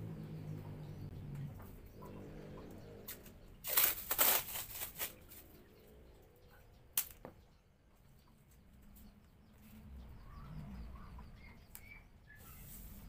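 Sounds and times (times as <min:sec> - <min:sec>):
masking tape tearing off roll: 0:03.6 - 0:05.3.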